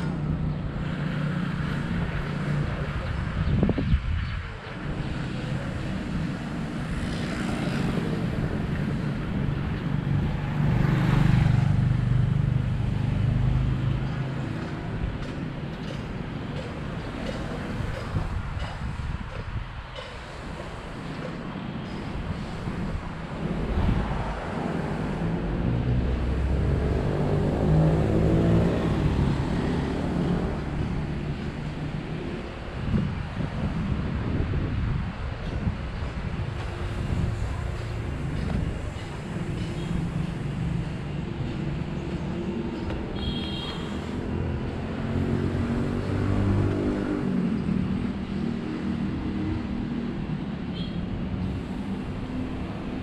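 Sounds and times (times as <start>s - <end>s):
vehicle engine rumble: 0.0s - 53.0s
vehicle engine passing by: 23.6s - 31.4s.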